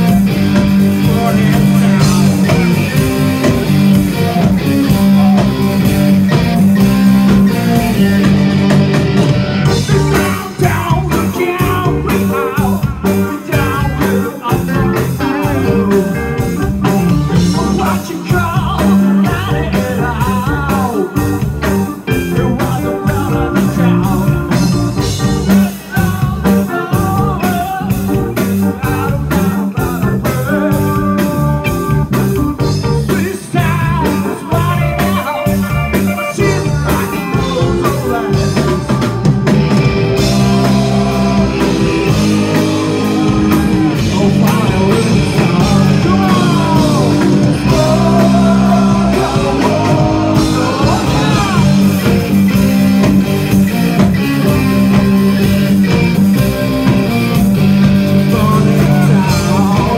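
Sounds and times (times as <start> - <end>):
drum kit: 0.0 - 59.9
electric guitar: 0.0 - 59.9
man singing: 1.0 - 5.8, 9.7 - 31.7, 32.5 - 39.2, 40.2 - 52.3, 58.1 - 59.9.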